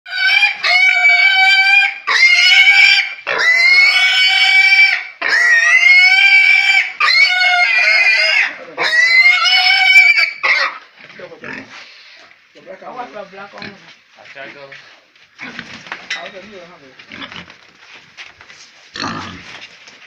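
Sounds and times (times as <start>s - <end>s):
piglet squealing: 0.1s - 10.8s.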